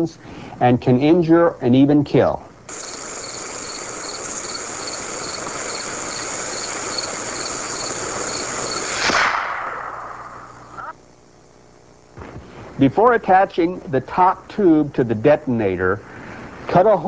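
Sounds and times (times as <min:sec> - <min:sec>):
fuse hissing: 0:02.7 - 0:10.8.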